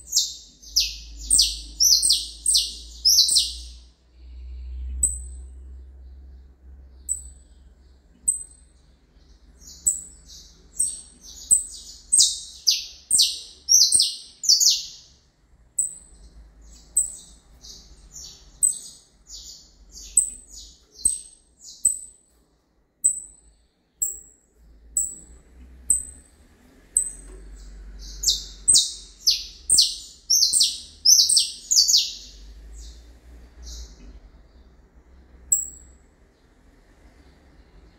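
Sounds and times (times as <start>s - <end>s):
finch song runs: 0.0s - 3.8s, 26.9s - 34.7s.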